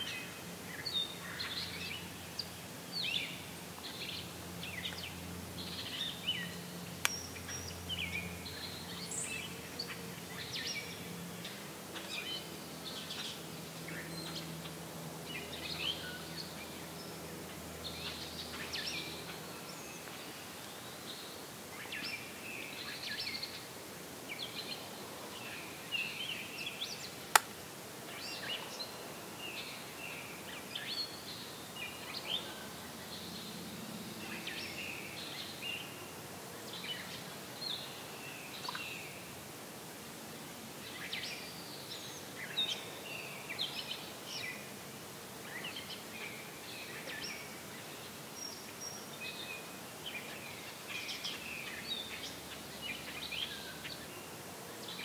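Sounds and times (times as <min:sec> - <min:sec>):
sharp click: 0:27.4 - 0:27.6.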